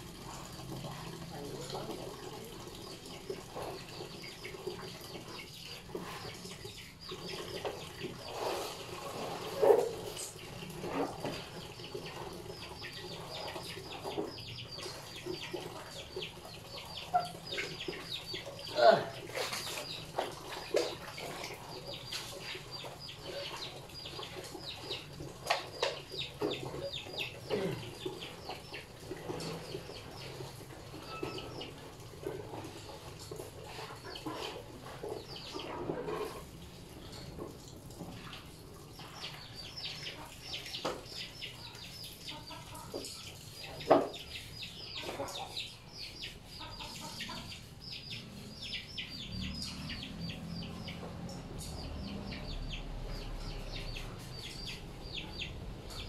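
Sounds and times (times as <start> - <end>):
water splashing and sloshing: 0.0 - 56.0
birds chirping: 38.8 - 56.0.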